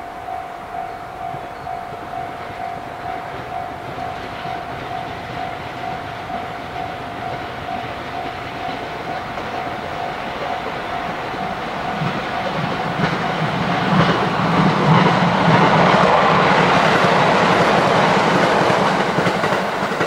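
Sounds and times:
level crossing bell ringing: 0.0 - 12.6
electric train running on rails: 0.0 - 20.0.

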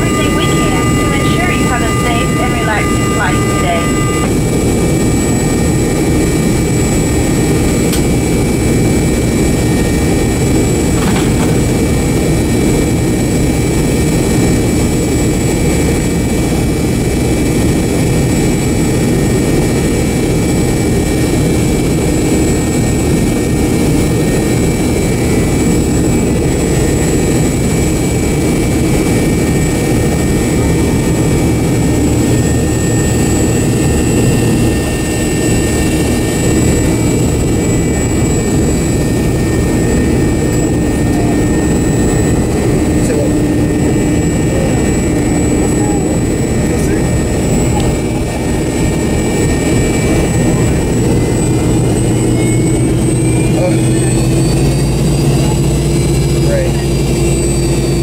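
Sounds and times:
high whining tones: 0.0 - 6.5, 28.3 - 58.0
jet engines idling from cabin: 0.0 - 58.0.

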